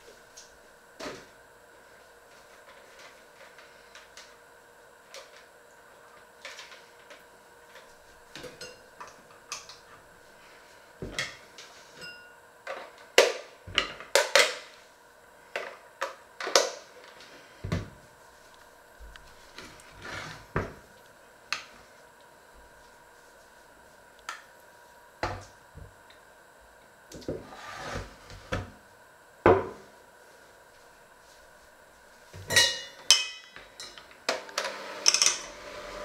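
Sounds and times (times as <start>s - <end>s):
faint steady hum: 0.0s - 36.0s
utensils and dishes clinking: 32.5s - 34.1s.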